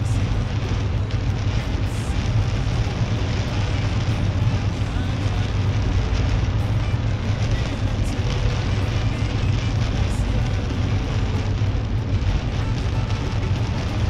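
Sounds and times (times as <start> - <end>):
rain beating on car: 0.0 - 14.0
tyre noise on flooded road: 0.0 - 14.0.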